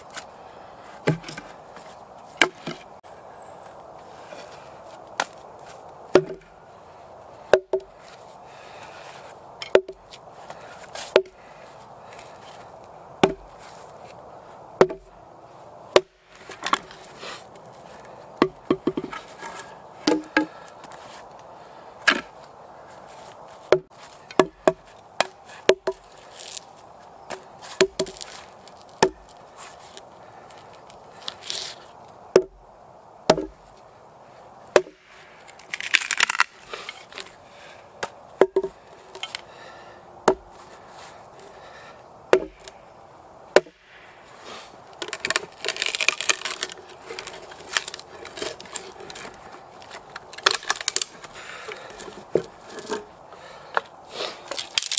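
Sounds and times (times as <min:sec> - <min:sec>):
hatchet chopping wood: 0:01.0 - 0:01.4, 0:02.4 - 0:02.9, 0:06.1 - 0:06.5, 0:07.5 - 0:07.9, 0:09.6 - 0:10.0, 0:11.0 - 0:11.4, 0:13.2 - 0:13.6, 0:14.8 - 0:15.1, 0:15.9 - 0:16.9, 0:18.4 - 0:20.6, 0:23.7 - 0:26.1, 0:27.3 - 0:28.3, 0:29.0 - 0:29.3, 0:32.3 - 0:32.6, 0:33.3 - 0:33.6, 0:34.7 - 0:35.1, 0:38.0 - 0:39.4, 0:40.2 - 0:40.5, 0:42.3 - 0:42.8, 0:43.5 - 0:43.8
wood splitting cracks: 0:01.0 - 0:01.5, 0:02.4 - 0:02.9, 0:05.1 - 0:06.5, 0:07.5 - 0:07.9, 0:09.6 - 0:11.4, 0:13.2 - 0:13.7, 0:15.9 - 0:17.1, 0:18.4 - 0:21.0, 0:23.7 - 0:26.7, 0:27.3 - 0:32.6, 0:33.3 - 0:33.6, 0:34.7 - 0:37.4, 0:41.5 - 0:42.8, 0:44.9 - 0:53.8, 0:54.4 - 0:54.9.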